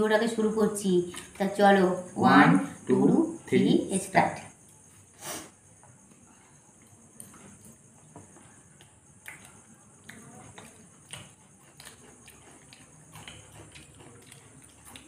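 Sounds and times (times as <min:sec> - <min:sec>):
chewing and mouth clicks: 0:01.0 - 0:01.4, 0:06.0 - 0:15.0.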